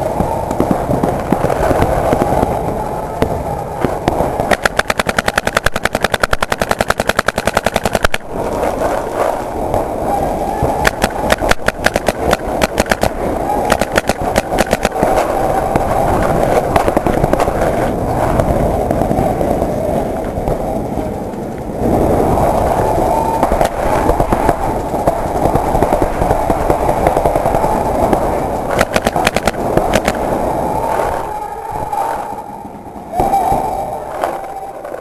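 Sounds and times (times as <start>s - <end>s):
handling rumble: 0.0s - 35.0s
paintball marker shots: 4.5s - 8.3s, 10.8s - 15.2s, 28.7s - 30.2s.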